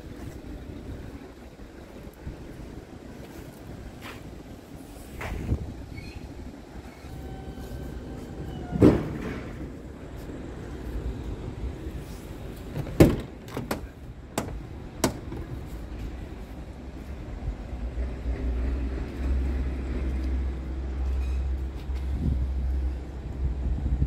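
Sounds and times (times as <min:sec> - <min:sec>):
truck door thump: 0:12.7 - 0:15.6.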